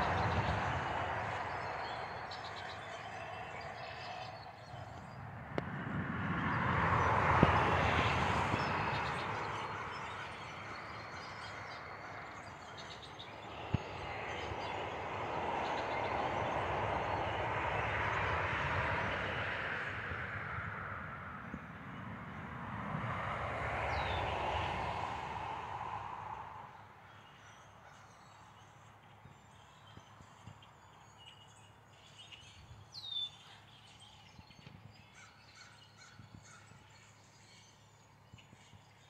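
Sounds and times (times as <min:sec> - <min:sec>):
road traffic passing: 0:00.0 - 0:27.8.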